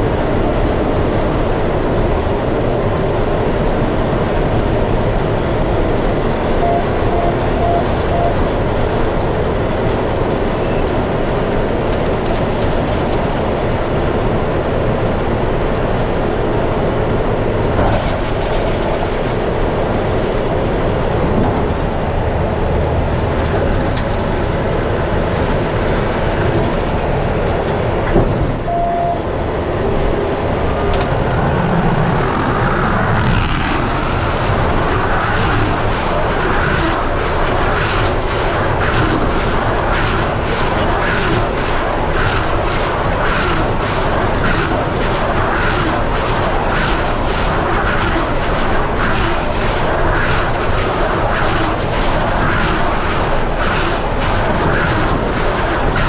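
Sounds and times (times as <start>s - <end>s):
baler working: 0.0s - 56.0s
tractor diesel engine running: 0.0s - 56.0s
short beep: 6.6s - 8.4s, 28.7s - 29.3s.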